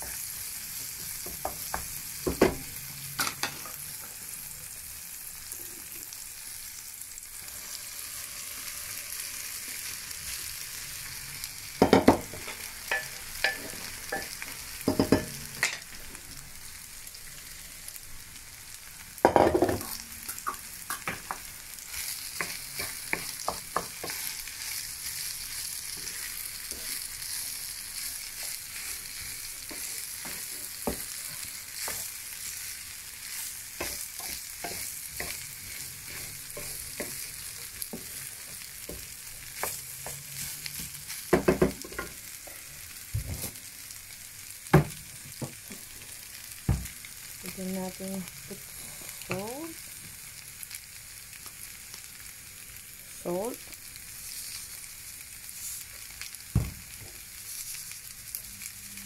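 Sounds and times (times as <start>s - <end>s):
rice sizzling in a pan: 0.0s - 59.0s
wooden spoon scraping a pan: 19.8s - 42.2s.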